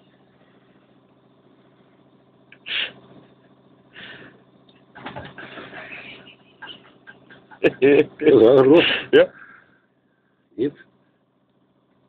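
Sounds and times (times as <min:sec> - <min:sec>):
ship engine hum: 0:00.0 - 0:09.6.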